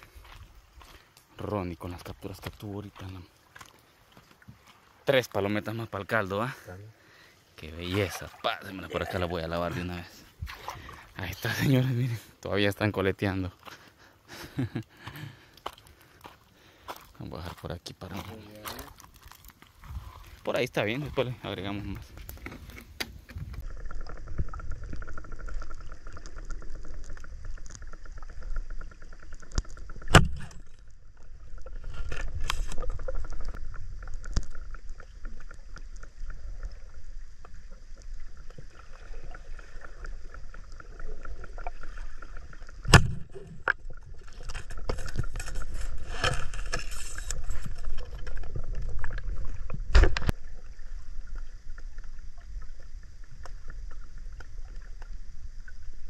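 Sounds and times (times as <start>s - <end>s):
underwater rumble of moving water: 19.0s - 56.0s
faint steady hum: 21.3s - 56.0s.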